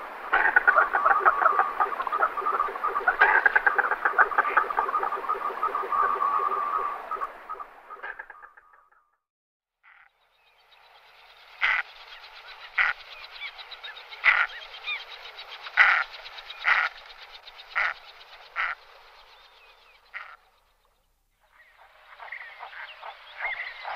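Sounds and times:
raspy background calling: 0:00.3 - 0:08.8, 0:14.0 - 0:20.5
ducks giving harsh calls: 0:03.1 - 0:04.7, 0:17.8 - 0:18.0.

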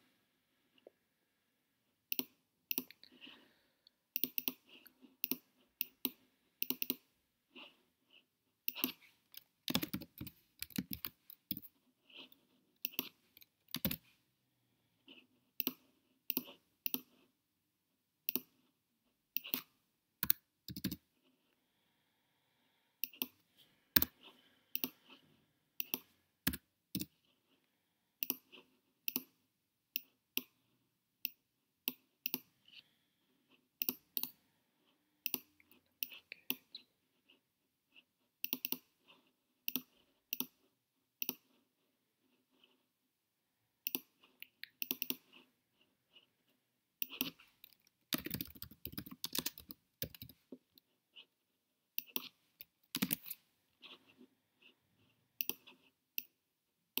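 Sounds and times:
mouse clicks: 0:02.1 - 0:03.1, 0:04.2 - 0:07.1, 0:15.6 - 0:17.1, 0:19.4 - 0:21.0, 0:23.0 - 0:23.4, 0:24.0 - 0:25.2, 0:25.8 - 0:27.2, 0:28.2 - 0:29.4, 0:31.2 - 0:32.5, 0:33.8 - 0:34.4, 0:35.2 - 0:36.9, 0:38.4 - 0:38.9, 0:39.7 - 0:40.6, 0:41.2 - 0:41.5, 0:43.8 - 0:45.3, 0:52.0 - 0:53.4, 0:55.4 - 0:56.4
keyboard keystrokes: 0:20.2 - 0:21.0.

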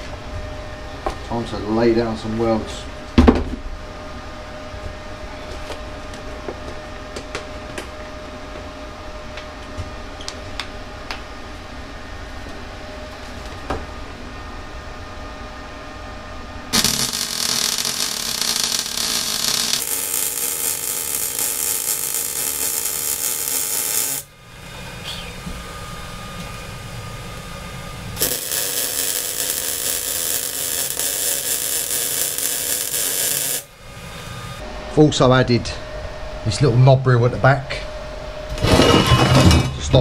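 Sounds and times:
arc welding hiss: 0:16.8 - 0:24.3, 0:28.2 - 0:33.7.

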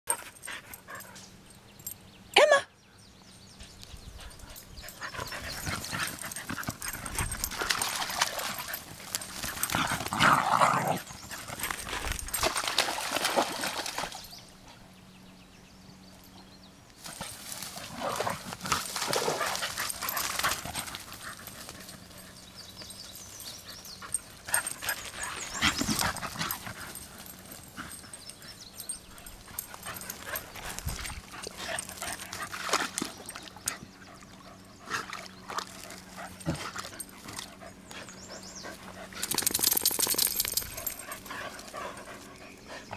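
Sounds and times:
rustling in grass: 0:17.0 - 0:22.2.

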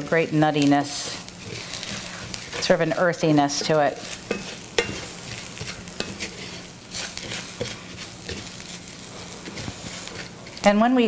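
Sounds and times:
pasta sizzling softly: 0:00.0 - 0:11.0
spatula scraping frying pan: 0:00.8 - 0:11.0.

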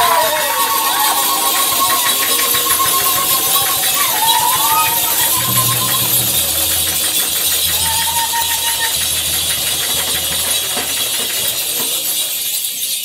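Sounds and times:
high held note: 0:01.1 - 0:11.4
djembe drums playing: 0:01.4 - 0:11.9.

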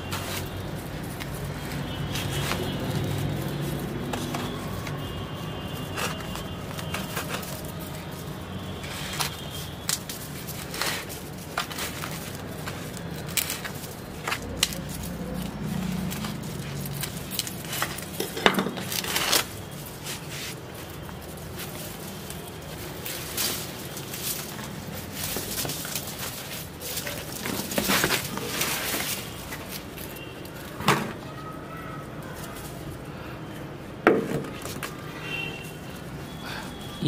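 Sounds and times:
hands breaking up soil in pot: 0:05.8 - 0:31.3.

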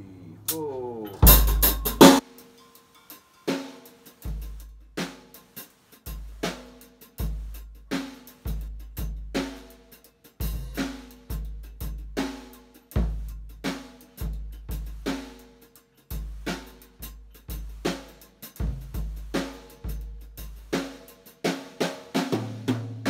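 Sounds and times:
cymbals ringing: 0:00.5 - 0:04.5
bass drum and snare beat: 0:01.2 - 0:02.2, 0:04.2 - 0:23.0
drum kit crashing hits: 0:01.2 - 0:02.2.

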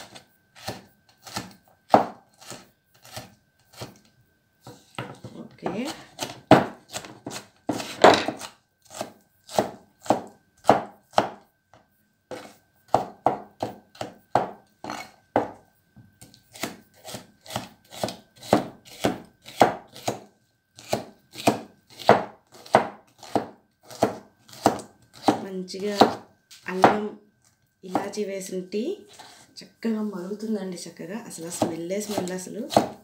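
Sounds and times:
knife chopping on board: 0:00.1 - 0:04.0, 0:04.7 - 0:11.4, 0:12.3 - 0:15.6, 0:16.2 - 0:27.1, 0:31.5 - 0:33.0.

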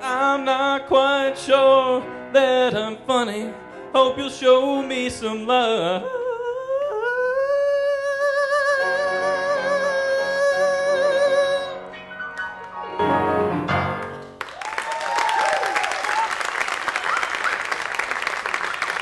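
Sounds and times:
man singing with vibrato: 0:00.0 - 0:12.0
grand piano chords: 0:00.0 - 0:14.4
audience applause: 0:14.0 - 0:19.0.

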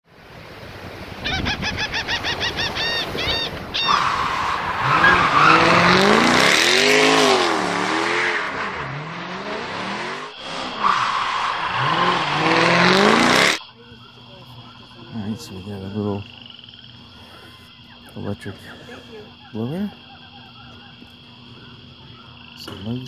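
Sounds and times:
racing car engine revving: 0:03.9 - 0:13.6.

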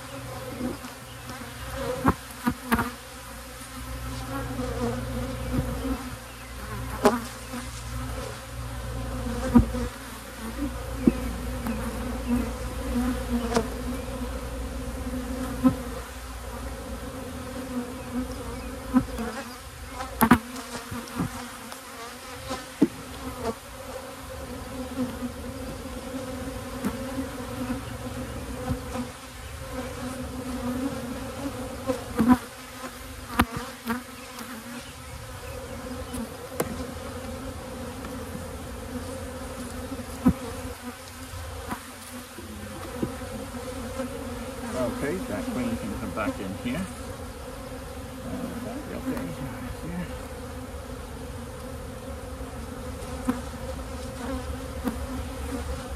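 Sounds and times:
honey bees buzzing: 0:00.0 - 0:55.9
hive tool clicking on wooden frames: 0:33.3 - 0:34.5, 0:36.1 - 0:37.4.

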